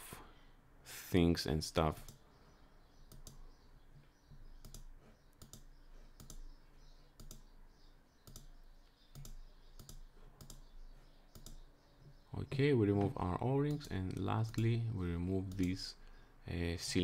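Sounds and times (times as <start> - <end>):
computer mouse clicking: 3.0 - 3.4, 4.6 - 6.5, 7.2 - 7.5, 8.2 - 10.7, 11.3 - 11.6.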